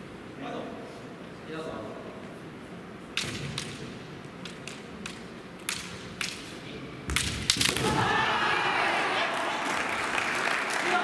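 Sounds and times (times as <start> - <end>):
bamboo swords clacking: 3.1 - 8.0.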